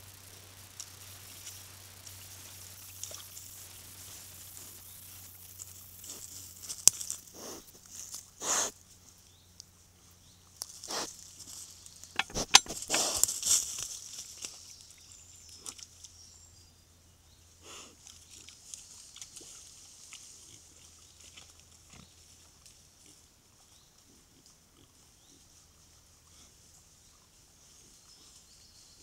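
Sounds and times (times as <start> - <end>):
movement through dry leaves: 0.9 - 9.2, 10.6 - 15.0.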